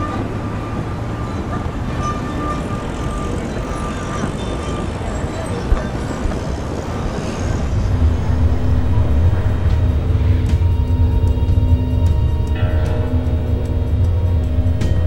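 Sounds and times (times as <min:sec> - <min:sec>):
traffic noise: 0:00.0 - 0:15.0
low steady drone: 0:06.3 - 0:15.0.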